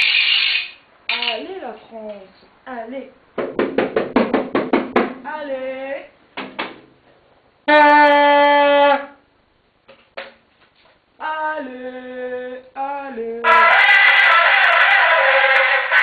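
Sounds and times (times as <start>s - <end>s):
toy horn noisemaker buzzing: 0.0s - 0.8s, 13.4s - 16.0s.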